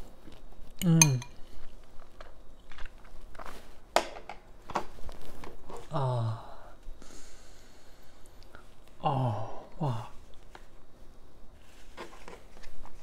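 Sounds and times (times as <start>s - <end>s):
man chewing and smacking: 0.2s - 3.5s.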